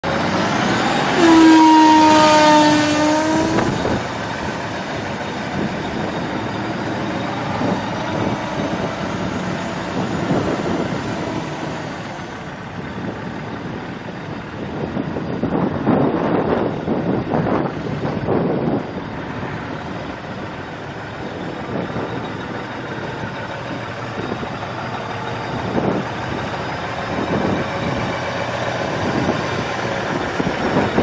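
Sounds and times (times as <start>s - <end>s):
vehicle running noise: 0.0s - 31.0s
truck horn: 0.4s - 12.4s.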